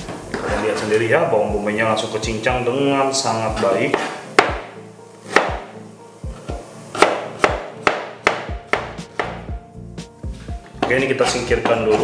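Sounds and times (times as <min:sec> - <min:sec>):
knife chopping on cutting board: 0:03.9 - 0:04.7, 0:05.3 - 0:05.7, 0:06.9 - 0:09.5.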